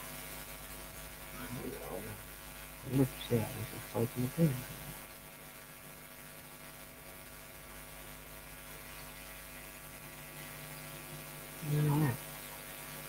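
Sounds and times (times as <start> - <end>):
electrical mains hum and buzz: 0.0 - 13.0
light hiss: 0.0 - 13.0
voice sound: 2.9 - 4.9, 11.6 - 12.2.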